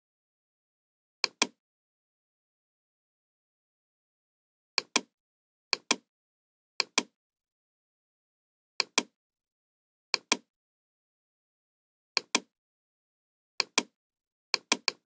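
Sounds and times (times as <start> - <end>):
computer mouse clicking: 1.2 - 1.6, 4.8 - 5.1, 5.8 - 6.1, 6.8 - 7.1, 8.8 - 9.1, 10.2 - 10.5, 12.2 - 12.5, 13.6 - 13.9, 14.6 - 15.0.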